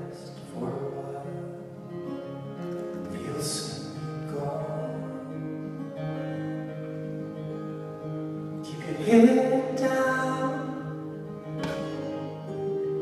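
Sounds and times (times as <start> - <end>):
man singing: 0.0 - 1.9, 3.0 - 5.8, 8.6 - 11.0
acoustic guitars strumming: 0.0 - 13.0.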